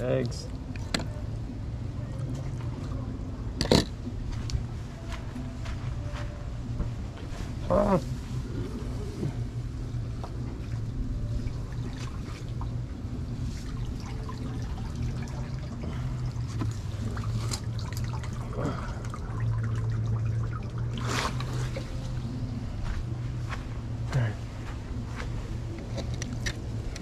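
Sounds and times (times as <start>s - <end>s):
steady low hum: 0.0s - 27.0s
water trickling: 10.6s - 22.2s.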